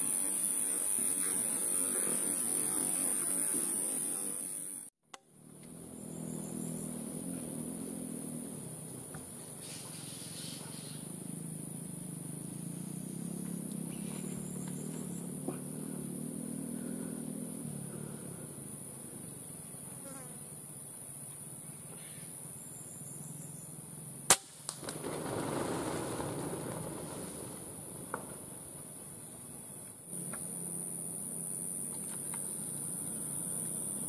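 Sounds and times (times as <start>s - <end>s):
high-pitched insect drone: 0.0s - 4.9s, 5.6s - 24.2s, 29.2s - 34.0s
air rifle shot: 24.3s - 25.4s.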